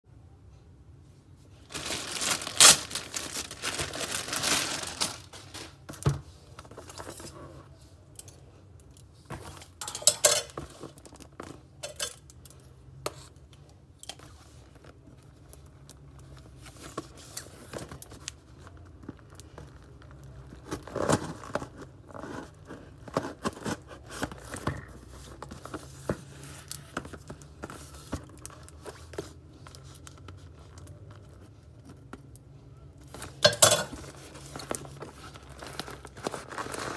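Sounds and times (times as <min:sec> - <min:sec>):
packaging crinkling and tearing: 0:01.6 - 0:06.0, 0:14.1 - 0:24.7, 0:33.0 - 0:36.9.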